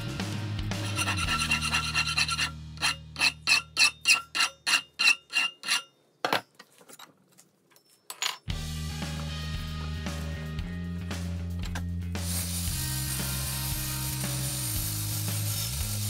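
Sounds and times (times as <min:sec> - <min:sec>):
file rasping on steel: 0:00.7 - 0:05.9
knocks and clinks: 0:03.5 - 0:08.6.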